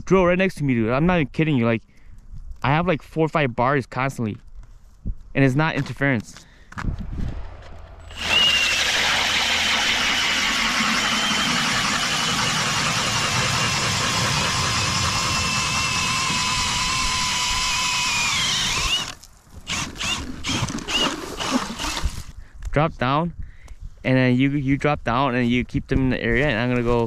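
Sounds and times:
power ice auger whining: 8.1s - 22.3s.

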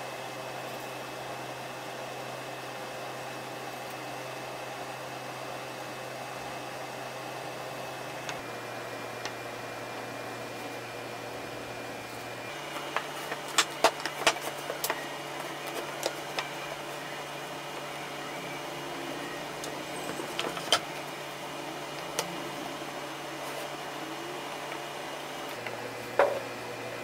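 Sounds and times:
steady low hum: 6.0s - 27.0s.

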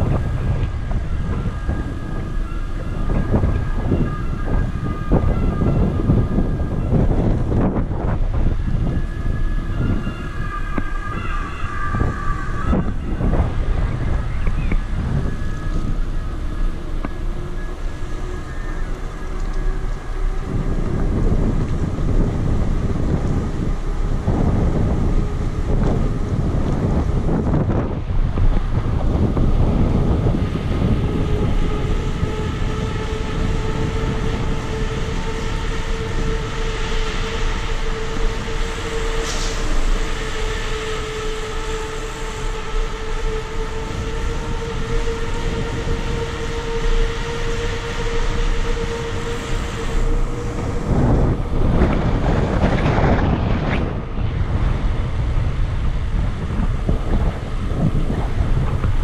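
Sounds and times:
steady hum: 0.0s - 59.0s
wind buffeting camera: 0.0s - 59.0s.

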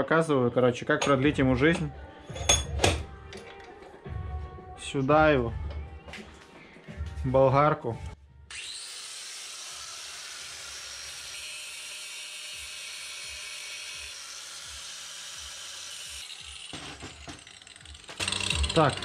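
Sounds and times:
angle grinder grinding steel: 8.5s - 19.0s.

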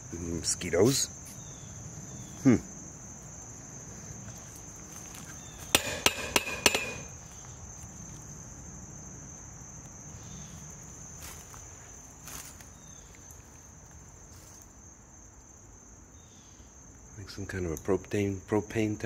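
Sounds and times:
insects chorus: 0.0s - 19.0s
sharp knocks: 5.7s - 7.1s.

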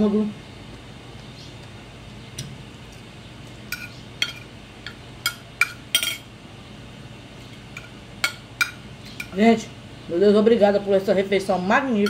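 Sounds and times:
cutlery clinking on plate: 3.7s - 6.3s.

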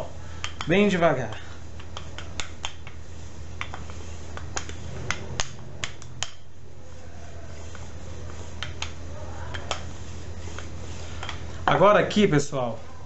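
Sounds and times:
rolling pin clicking and knocking: 0.4s - 6.5s, 8.5s - 9.9s.

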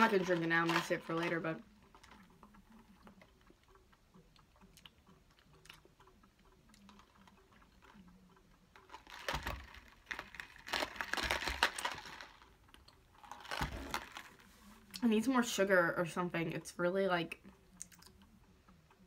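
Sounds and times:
plastic cup crinkling and rattling: 0.0s - 4.8s, 6.8s - 14.6s.

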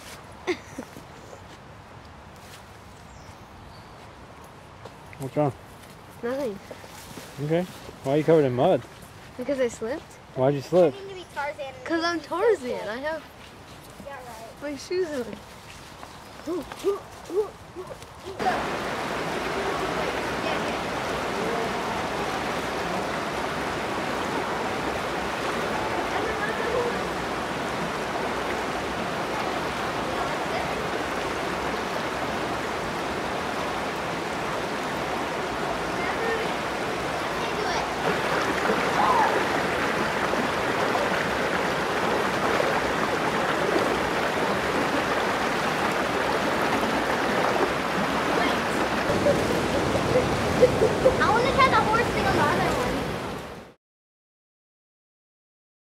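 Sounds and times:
stream rushing over rocks: 16.4s - 53.8s.

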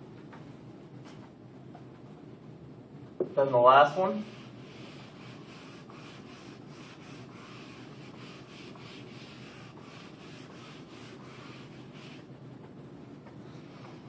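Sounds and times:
eraser rubbing on whiteboard: 4.2s - 12.3s.

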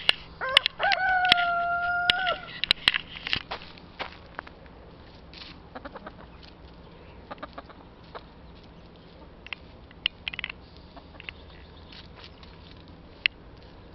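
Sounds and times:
hens clucking: 5.6s - 13.9s.

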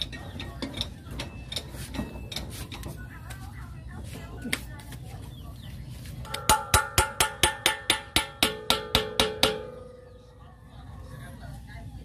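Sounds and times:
metal tool tapping steel hub: 6.2s - 10.0s.

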